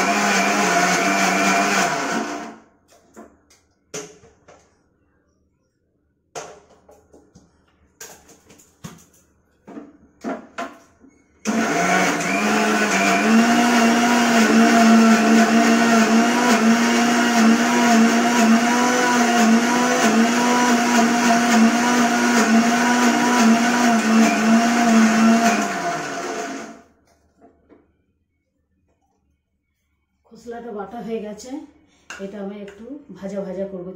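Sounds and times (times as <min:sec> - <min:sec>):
mixer grinder motor whine: 0:00.0 - 0:02.6, 0:11.4 - 0:26.8.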